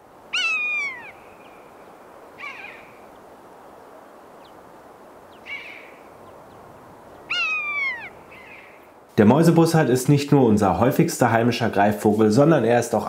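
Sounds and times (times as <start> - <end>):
buzzard mewing cries: 0.3 - 1.2, 2.4 - 3.0, 7.3 - 8.8.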